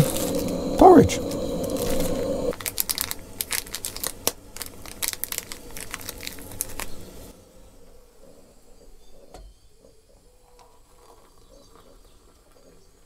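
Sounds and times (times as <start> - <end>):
steady hiss: 0.0 - 2.6
food packaging crinkling: 0.0 - 7.3.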